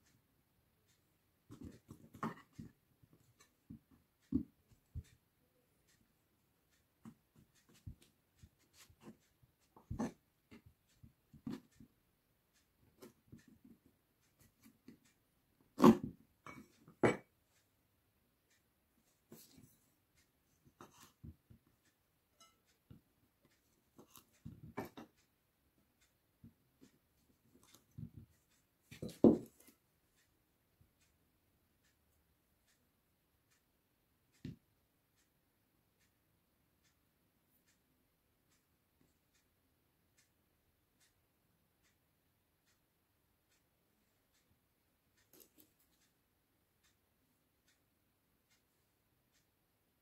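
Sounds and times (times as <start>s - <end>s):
knife cutting cheese: 15.7s - 16.1s.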